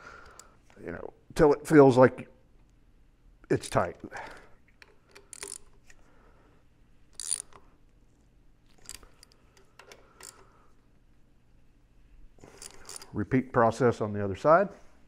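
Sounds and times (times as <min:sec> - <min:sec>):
socket ratchet clicking: 0:04.8 - 0:05.9, 0:07.1 - 0:07.7.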